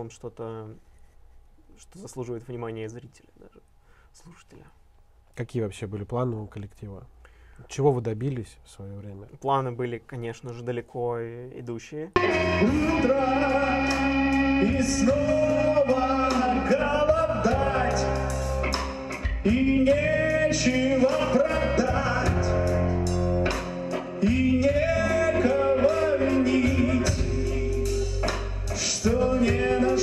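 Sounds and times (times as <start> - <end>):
man singing: 12.2 - 18.4, 19.2 - 23.0, 24.1 - 30.0
rock band playing: 12.2 - 30.0.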